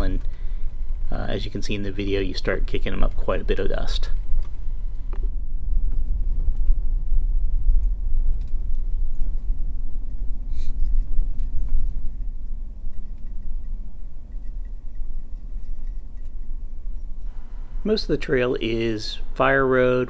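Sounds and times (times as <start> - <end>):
light clicks and rattles: 7.7 - 17.3.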